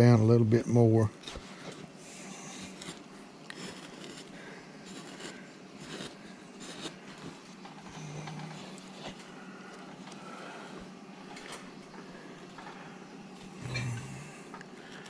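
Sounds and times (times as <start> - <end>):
carving gouge scraping wood: 2.7 - 7.0.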